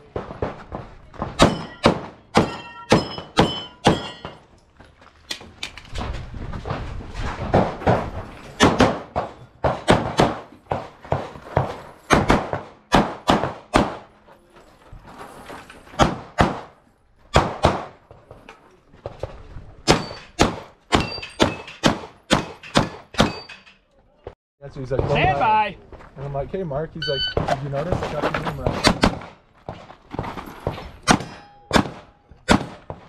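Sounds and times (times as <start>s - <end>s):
pistol shots: 8.6s - 11.2s, 12.1s - 14.1s, 16.0s - 16.7s, 17.3s - 18.0s, 31.0s - 33.0s.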